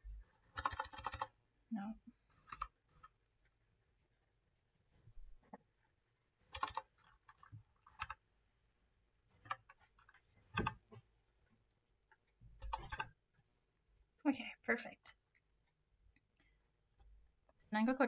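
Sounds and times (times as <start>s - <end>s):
computer keyboard keys clicking: 0.5s - 1.3s, 2.4s - 2.7s, 6.5s - 8.2s, 10.5s - 10.8s, 12.6s - 13.1s.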